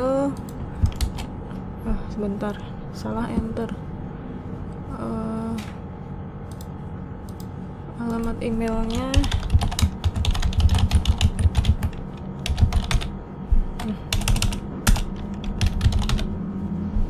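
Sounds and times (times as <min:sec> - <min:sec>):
computer keyboard typing: 0:00.4 - 0:01.3, 0:06.5 - 0:13.1, 0:13.8 - 0:16.3.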